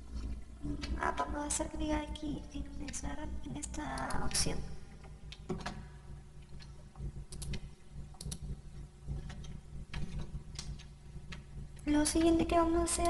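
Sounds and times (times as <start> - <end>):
low steady hum: 0.0 - 13.0
computer mouse clicking: 6.4 - 12.4.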